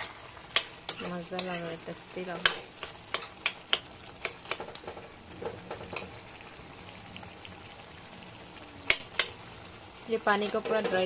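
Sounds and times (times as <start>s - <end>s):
spoon clinking and scraping pan: 0.0s - 6.1s
low sizzle: 0.0s - 11.0s.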